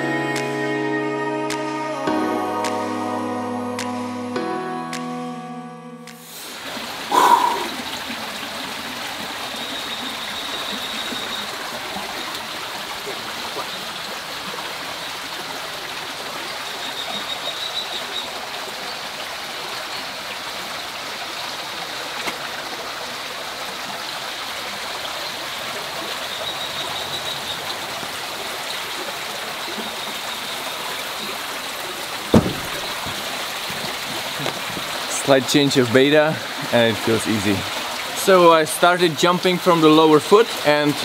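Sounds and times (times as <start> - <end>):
stream rushing: 6.3 - 41.0
low thump: 32.3 - 33.2.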